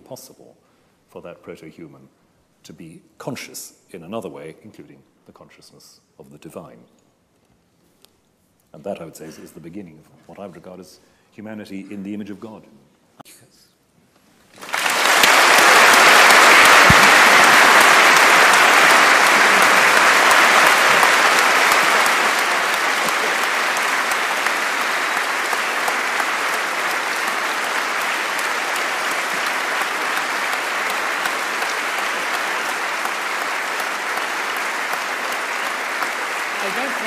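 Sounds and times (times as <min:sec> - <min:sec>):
audience applauding: 0:14.5 - 0:37.0.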